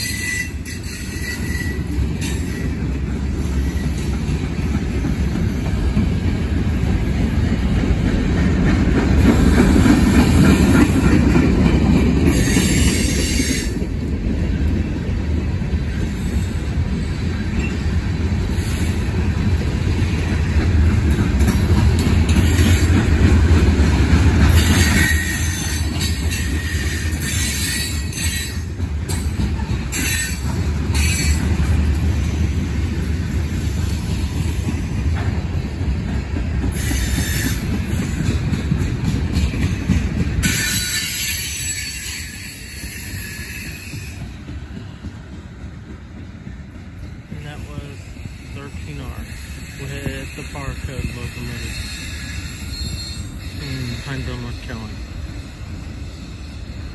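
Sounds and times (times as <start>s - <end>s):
high-pitched wheel squeal: 0.0s - 2.7s, 51.4s - 54.0s
train wheels rumbling on rail: 0.0s - 56.9s.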